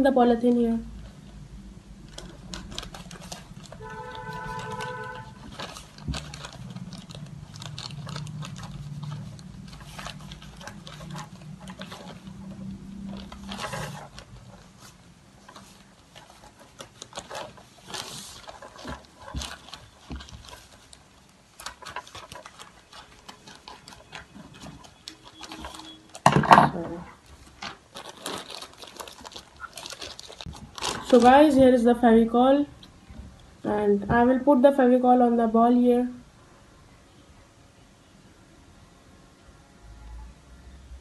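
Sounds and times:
plastic bag crinkling: 0:02.0 - 0:32.7.

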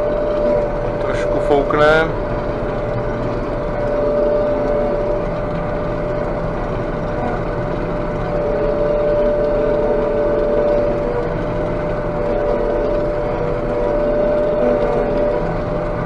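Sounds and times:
engine drone: 0:00.0 - 0:16.0
steady high whine: 0:00.0 - 0:16.0.

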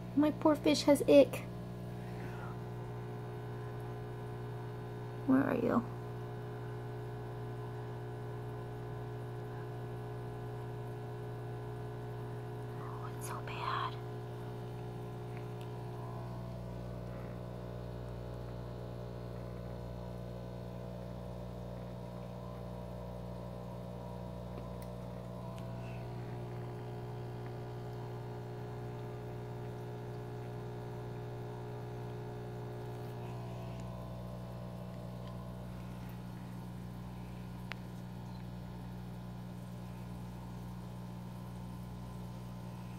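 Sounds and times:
aquarium pump humming: 0:00.0 - 0:42.9
water bubbling: 0:14.0 - 0:20.2, 0:20.9 - 0:42.9.

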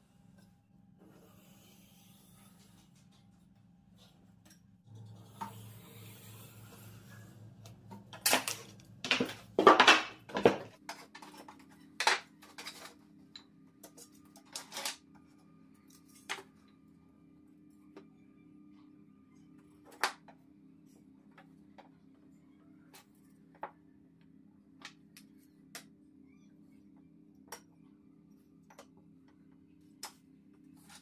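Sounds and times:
wooden strips clattering: 0:08.2 - 0:10.8.

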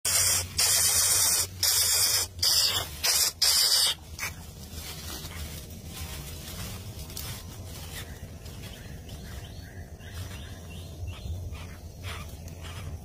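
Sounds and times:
bird nestling hissing: 0:00.1 - 0:04.4.

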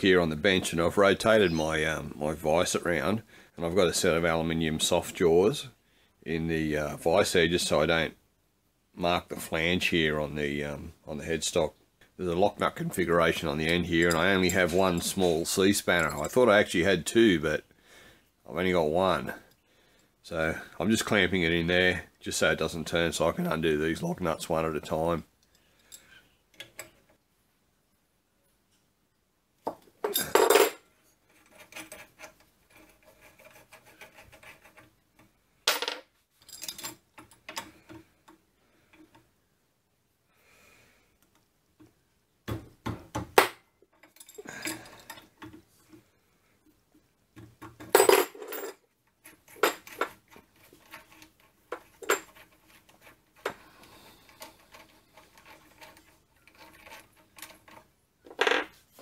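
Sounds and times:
steel tools clinking: 0:13.4 - 0:16.6, 0:43.9 - 0:45.3.

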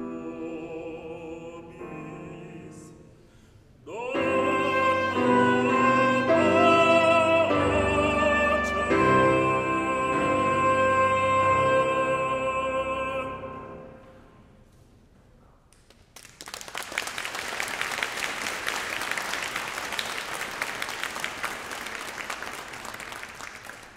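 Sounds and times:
audience applause: 0:16.2 - 0:23.9.

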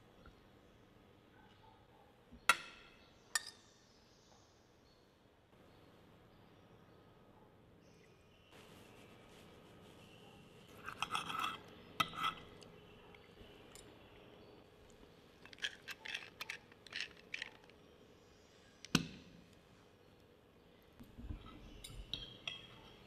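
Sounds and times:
knife and fork scraping plate: 0:10.8 - 0:12.6.

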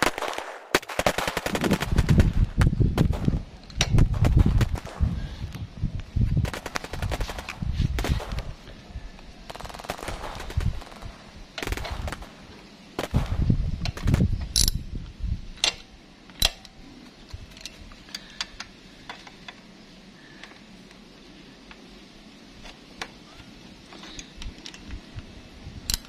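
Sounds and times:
hand ratchet clicking: 0:13.8 - 0:14.9.

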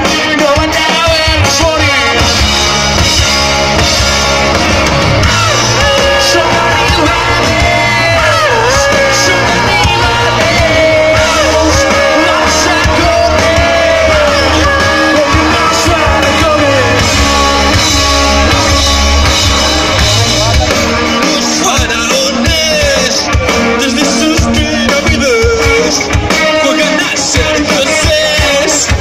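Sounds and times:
rock band playing: 0:00.0 - 0:29.0
person singing: 0:05.2 - 0:19.3.

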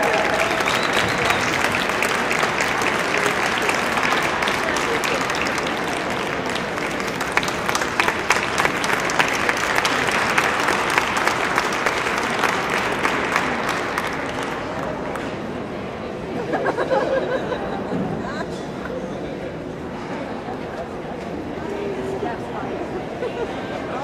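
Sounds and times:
audience clapping: 0:00.0 - 0:15.4.

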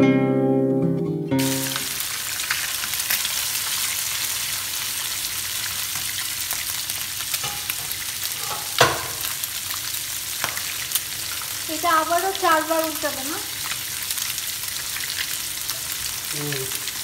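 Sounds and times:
fish sizzling in hot oil: 0:01.4 - 0:17.0.

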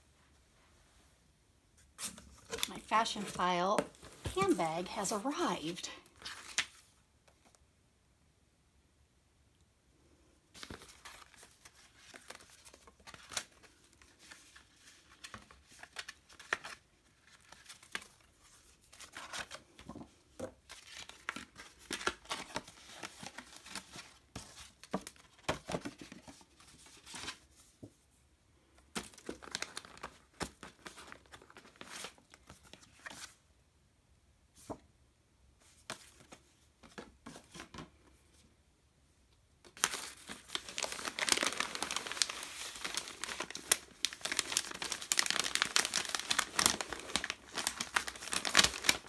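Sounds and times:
tissue paper rustling: 0:02.0 - 0:07.0, 0:39.8 - 0:49.0.

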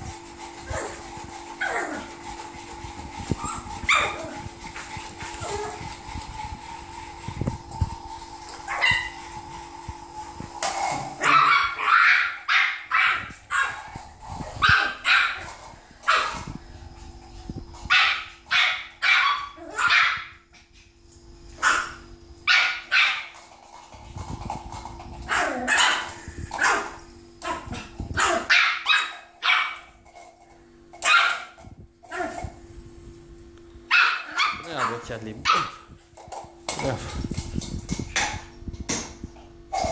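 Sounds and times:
puppy yapping: 0:03.4 - 0:04.4, 0:11.2 - 0:13.9, 0:14.6 - 0:15.5, 0:17.9 - 0:20.3, 0:25.3 - 0:29.9, 0:33.9 - 0:35.8.

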